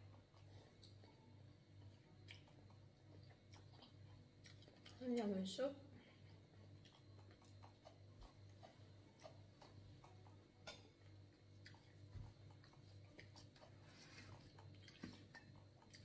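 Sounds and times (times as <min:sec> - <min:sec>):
small clicks and taps of eating: 0:00.0 - 0:05.4, 0:06.2 - 0:16.0
low steady hum: 0:00.0 - 0:16.0.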